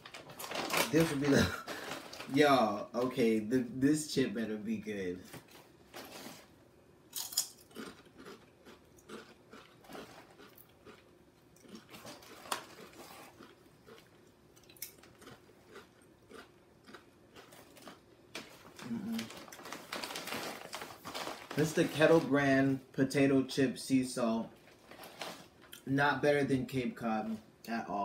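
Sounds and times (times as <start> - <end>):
potato chips crunching: 0.1 - 2.7, 7.1 - 22.3.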